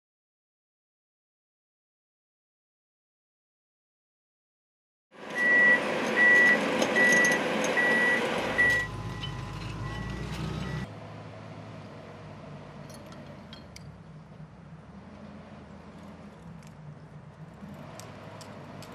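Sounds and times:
pile-driving rig engine: 0:05.2 - 0:18.9
high warning beeps: 0:05.4 - 0:10.9
light metallic clinks: 0:12.8 - 0:14.0.

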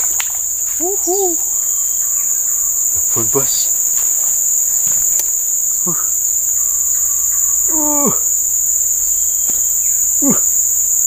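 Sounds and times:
high-pitched insect drone: 0:00.0 - 0:11.0
short falling vocal call: 0:00.8 - 0:01.4.

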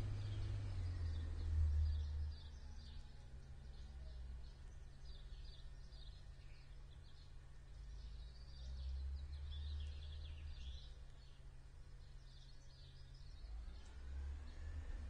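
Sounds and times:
low steady rumble: 0:00.0 - 0:08.2
small birds chirping: 0:00.0 - 0:14.8.

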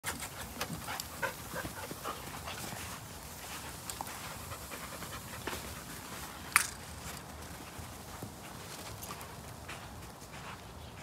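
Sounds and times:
dogs panting: 0:00.0 - 0:06.4.

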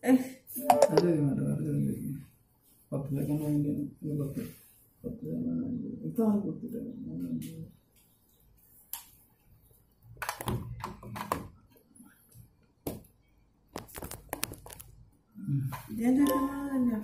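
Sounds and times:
person speaking: 0:00.5 - 0:02.3.

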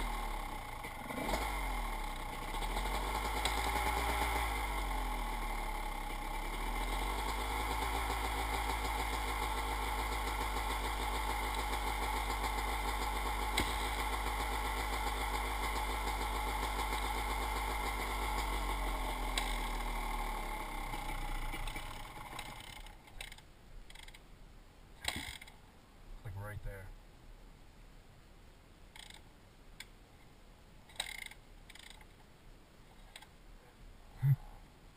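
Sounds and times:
dirt bike engine running: 0:00.0 - 0:24.2.

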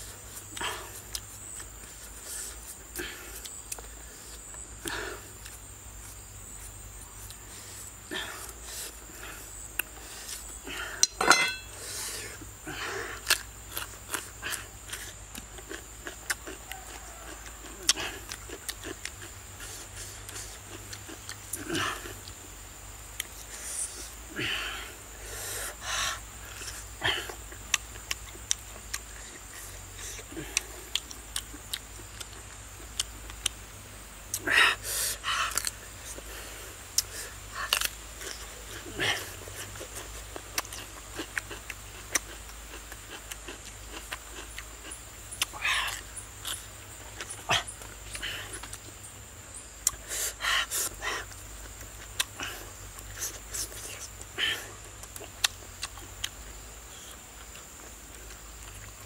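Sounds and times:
noisy breaths: 0:00.0 - 0:13.4, 0:19.5 - 0:20.8, 0:23.3 - 0:27.6, 0:34.3 - 0:37.8, 0:49.4 - 0:54.8
person chewing: 0:00.3 - 0:22.5, 0:23.1 - 0:24.1, 0:26.4 - 0:33.6, 0:35.5 - 0:49.0, 0:49.7 - 0:59.0
lip smacks: 0:39.7 - 0:49.0, 0:49.8 - 0:56.4
mouth smacking clicks: 0:49.8 - 0:50.1, 0:54.9 - 0:56.4.

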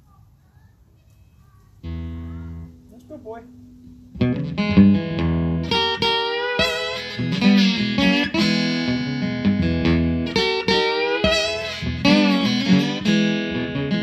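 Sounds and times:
acoustic guitar chords: 0:01.8 - 0:14.0.

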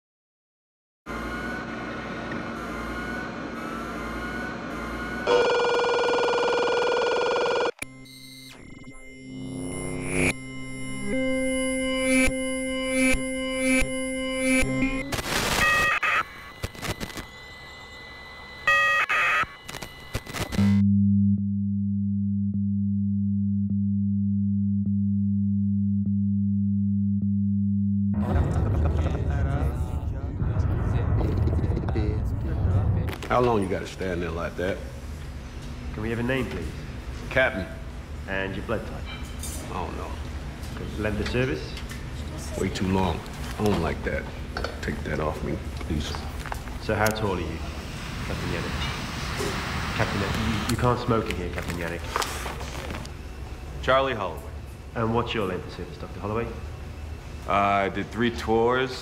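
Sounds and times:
loud electronic buzzing tone: 0:01.1 - 0:28.2
quiet electronic tones: 0:07.8 - 0:21.4
hissing static: 0:15.1 - 0:18.0, 0:46.4 - 0:53.1
low electronic drone: 0:16.2 - 0:38.9.

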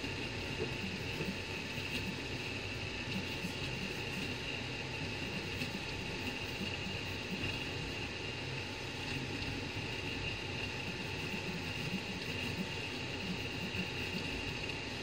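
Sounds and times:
fan whine: 0:00.0 - 0:15.0.

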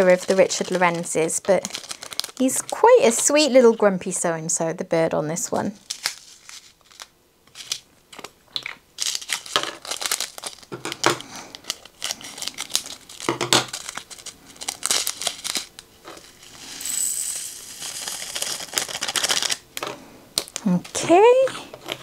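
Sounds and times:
plastic bags crinkling: 0:00.0 - 0:03.4, 0:05.7 - 0:16.7, 0:17.6 - 0:22.0
tiny beads pouring: 0:11.6 - 0:19.6.

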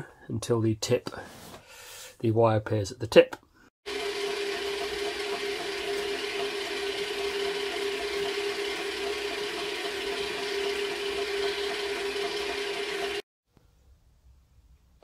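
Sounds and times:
wire feed motor whirring: 0:03.9 - 0:13.2.

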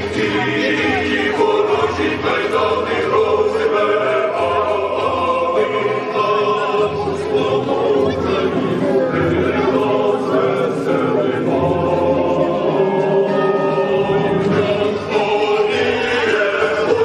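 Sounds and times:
choir singing long notes: 0:00.0 - 0:17.0.

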